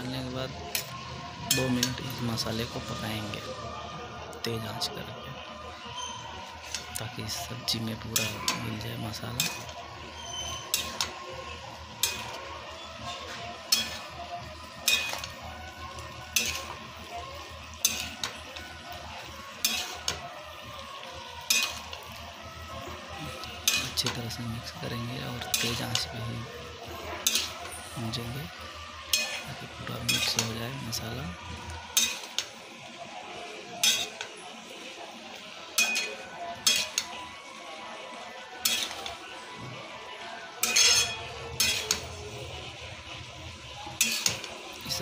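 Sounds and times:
curry sizzling in a frying pan: 0:00.0 - 0:45.0
spatula scraping and tossing: 0:06.5 - 0:07.0, 0:07.7 - 0:11.2, 0:11.8 - 0:22.2, 0:23.3 - 0:24.7, 0:25.4 - 0:28.1, 0:29.0 - 0:30.5, 0:31.9 - 0:32.6, 0:33.8 - 0:34.3, 0:35.8 - 0:37.2, 0:38.6 - 0:39.2, 0:40.6 - 0:42.2, 0:43.9 - 0:44.8
spatula scraping frying pan: 0:09.4 - 0:11.1, 0:12.0 - 0:12.4, 0:13.1 - 0:14.1, 0:14.8 - 0:15.3, 0:16.0 - 0:16.8, 0:17.8 - 0:18.4, 0:19.6 - 0:20.2, 0:21.4 - 0:22.0, 0:23.6 - 0:24.0, 0:27.2 - 0:27.9, 0:29.1 - 0:29.5, 0:32.0 - 0:32.5, 0:33.8 - 0:34.3, 0:35.8 - 0:37.1, 0:38.6 - 0:39.1, 0:40.6 - 0:42.2, 0:44.0 - 0:44.6.

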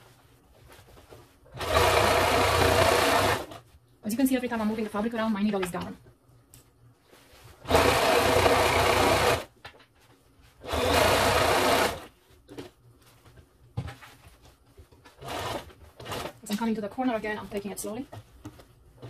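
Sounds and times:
sewing machine stitching: 0:01.5 - 0:03.6, 0:07.6 - 0:09.5, 0:10.6 - 0:12.1, 0:15.2 - 0:16.5.

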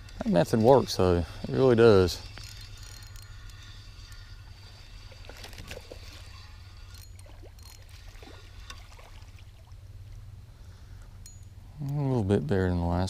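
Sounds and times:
fishing reel being cranked: 0:00.0 - 0:09.0
steady low rumble: 0:00.0 - 0:13.0
fish splashing: 0:03.5 - 0:09.8.

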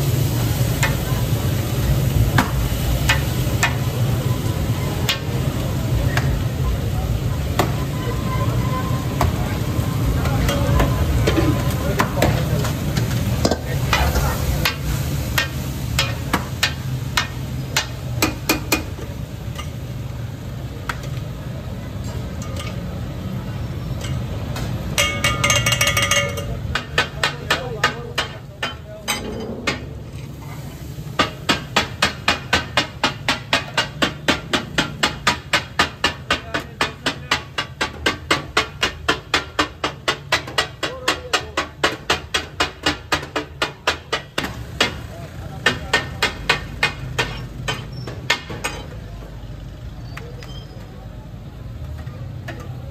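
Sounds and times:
metal spatulas clanging on griddle: 0:00.6 - 0:04.0, 0:05.0 - 0:05.5, 0:10.2 - 0:20.0, 0:22.0 - 0:23.2, 0:23.9 - 0:45.0, 0:45.6 - 0:49.2.

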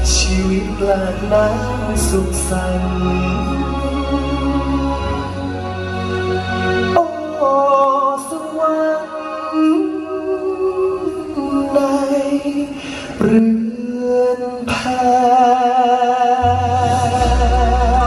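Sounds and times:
man singing a slow song: 0:00.0 - 0:05.4, 0:06.9 - 0:18.0
deep bass notes: 0:00.0 - 0:07.4, 0:16.4 - 0:18.0
soft band accompaniment: 0:00.0 - 0:18.0.

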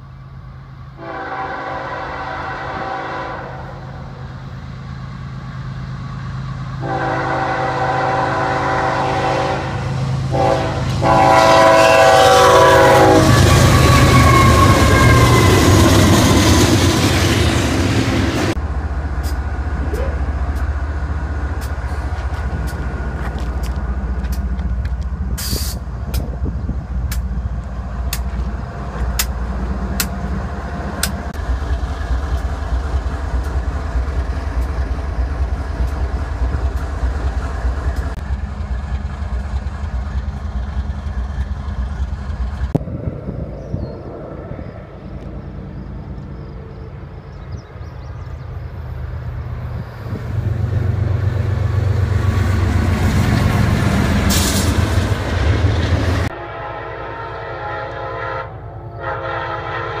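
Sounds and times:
diesel locomotives idling: 0:00.0 - 0:43.3
train rumble: 0:00.0 - 1:00.0
locomotive air horn blasts: 0:01.0 - 0:04.1, 0:06.8 - 0:15.7, 0:56.3 - 1:00.0.

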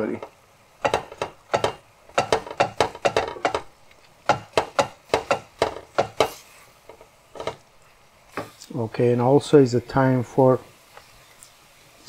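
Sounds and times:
wooden spoon scraping a pan: 0:04.3 - 0:07.6.

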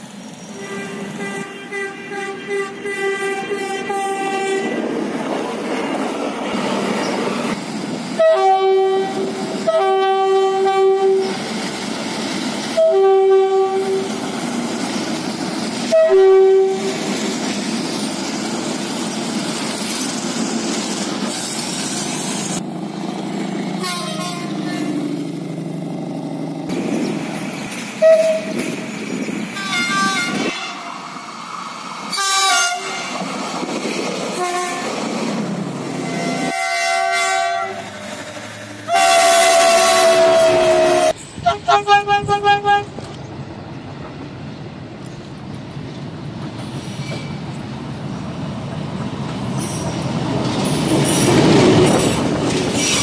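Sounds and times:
passing train: 0:00.0 - 0:53.0
train horn blasts: 0:00.6 - 0:04.8, 0:08.2 - 0:11.3, 0:12.8 - 0:14.1, 0:15.9 - 0:17.0, 0:23.8 - 0:25.0, 0:28.0 - 0:28.6, 0:29.6 - 0:30.9, 0:32.1 - 0:33.2, 0:34.4 - 0:34.9, 0:36.0 - 0:43.0.

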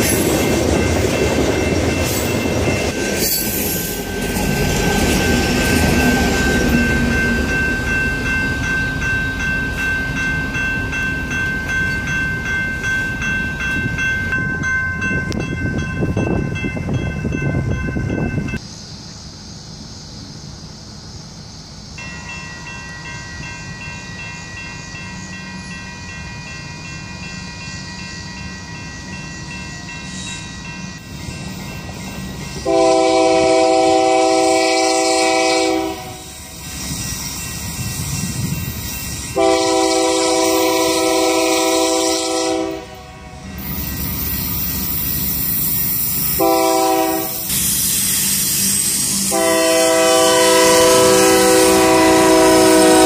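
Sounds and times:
train rumbling: 0:00.0 - 0:53.0
locomotive air horn blasts: 0:32.6 - 0:36.4, 0:39.4 - 0:43.4, 0:46.3 - 0:47.5, 0:49.3 - 0:53.0.

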